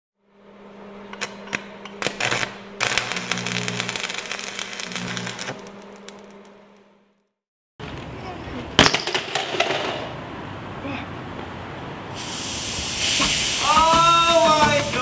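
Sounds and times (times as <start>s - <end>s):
low electronic hum: 0.2s - 7.2s
static-like crackling: 2.0s - 6.9s.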